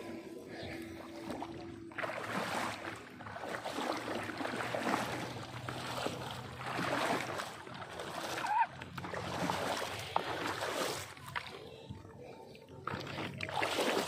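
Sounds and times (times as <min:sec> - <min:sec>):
wading through water splashing: 0:00.0 - 0:14.0.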